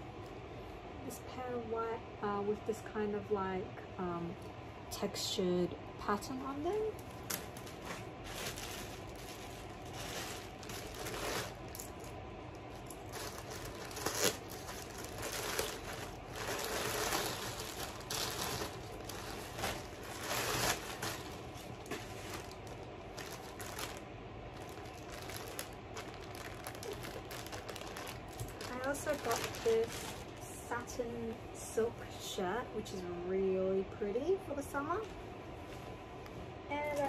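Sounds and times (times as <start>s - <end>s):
plastic packaging rustling: 6.6s - 30.6s.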